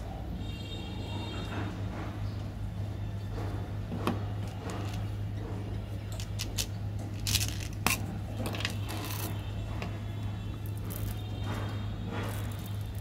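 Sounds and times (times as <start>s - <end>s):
candy wrappers crinkling: 6.2s - 9.3s.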